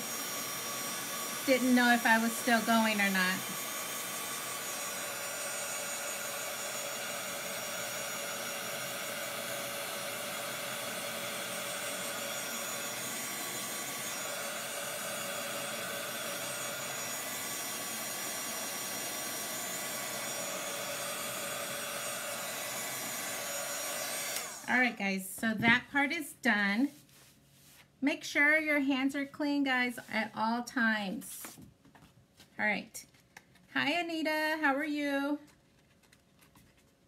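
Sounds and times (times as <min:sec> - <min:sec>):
electric blower whooshing: 0:00.0 - 0:24.9.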